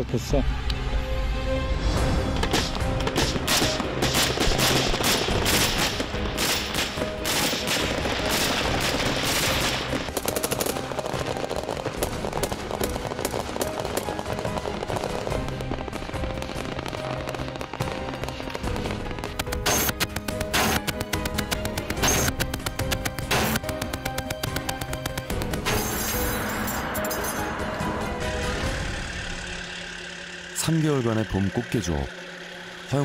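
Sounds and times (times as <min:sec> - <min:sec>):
background music: 0:00.0 - 0:33.0
automatic gunfire: 0:03.5 - 0:14.2.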